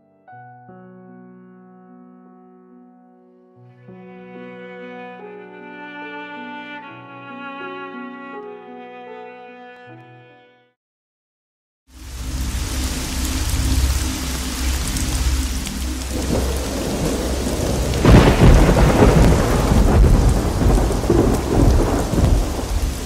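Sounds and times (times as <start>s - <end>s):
heavy rain: 11.9s - 23.0s
rumbling thunder: 16.0s - 23.0s.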